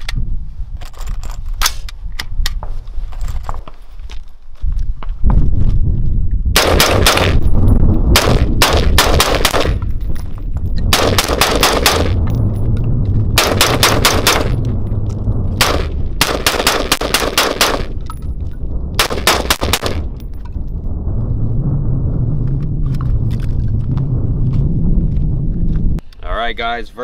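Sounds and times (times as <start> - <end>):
rifle gunshots: 6.6 - 7.5, 8.1 - 9.8, 10.9 - 12.2, 13.4 - 14.6, 15.6 - 18.0, 19.0 - 20.1.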